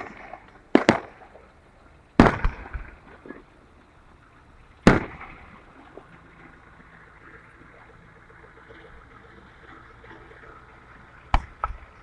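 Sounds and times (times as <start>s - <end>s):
firework shells bursting: 0.0s - 1.3s, 2.2s - 3.0s, 4.8s - 5.4s.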